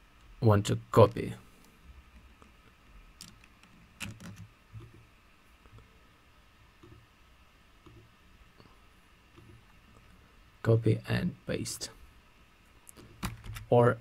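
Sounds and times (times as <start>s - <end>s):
computer mouse clicks: 7.8s - 8.1s.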